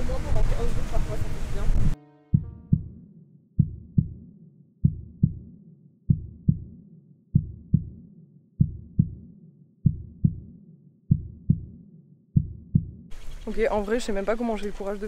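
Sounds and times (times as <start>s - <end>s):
heartbeat: 2.3s - 3.0s, 3.6s - 4.2s, 4.8s - 8.0s, 8.6s - 11.8s, 12.4s - 13.1s.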